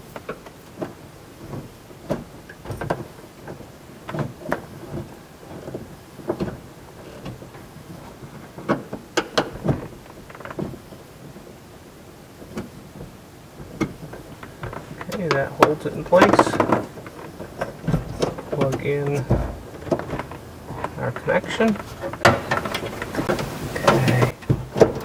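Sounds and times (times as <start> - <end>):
clicks and rustling: 12.3 - 25.0.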